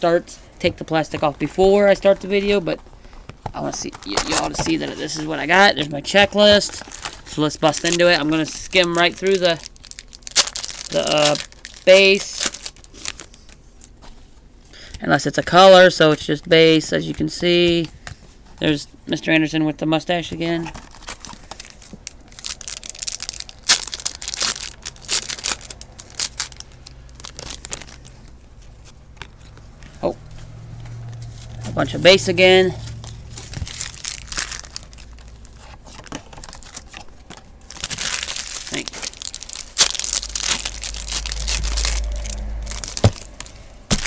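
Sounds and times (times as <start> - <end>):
wrapper crinkling and tearing: 3.6 - 14.0, 20.6 - 29.6, 31.0 - 44.0
cards being flipped through: 32.9 - 44.0.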